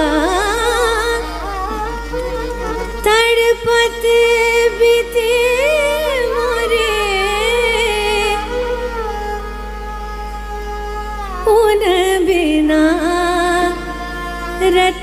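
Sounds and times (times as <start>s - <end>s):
harmonium: 0.0s - 15.0s
sarangi: 0.0s - 15.0s
tanpura drone: 0.0s - 15.0s
woman singing wordless line: 3.0s - 8.9s, 11.4s - 15.0s.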